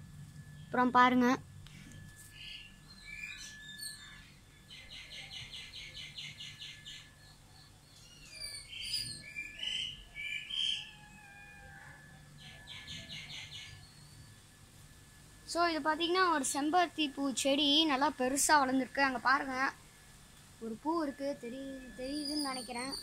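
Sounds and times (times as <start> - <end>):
bird chirps: 2.3 - 11.1, 12.4 - 14.4, 20.9 - 23.0
birds calling rapid high notes: 2.3 - 11.1, 20.9 - 23.0.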